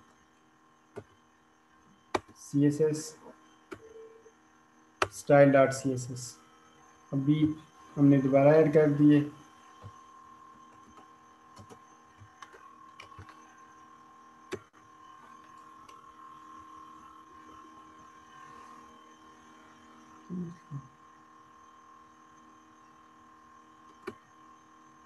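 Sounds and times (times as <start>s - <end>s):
faint mains hum: 0.0s - 25.0s
keyboard and mouse clicks: 11.6s - 13.4s, 23.9s - 24.2s.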